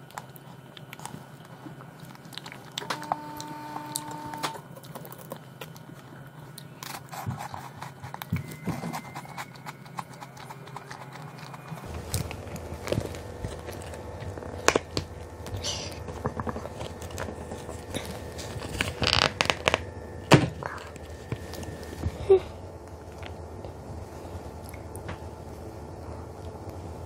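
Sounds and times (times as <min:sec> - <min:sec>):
wafer being bitten and chewed: 0:00.0 - 0:19.8.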